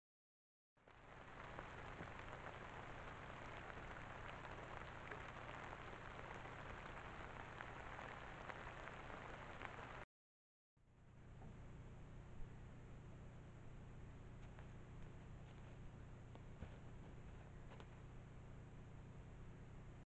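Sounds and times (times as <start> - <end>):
faint ticks and crackles: 0.8 - 10.0, 14.2 - 18.4
microphone hiss: 0.8 - 10.0.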